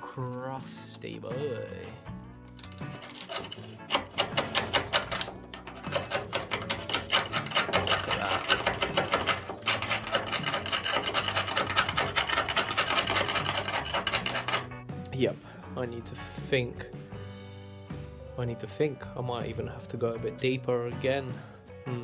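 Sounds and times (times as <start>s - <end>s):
small machine clattering: 2.6s - 14.7s.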